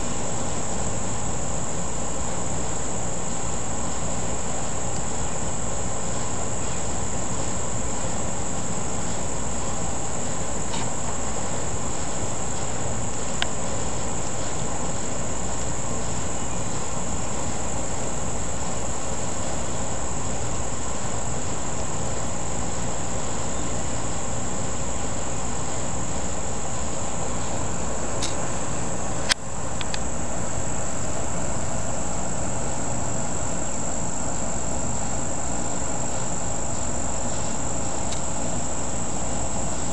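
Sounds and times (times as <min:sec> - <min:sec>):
insects trilling: 0:00.0 - 0:39.9
sharp click: 0:28.2 - 0:28.4.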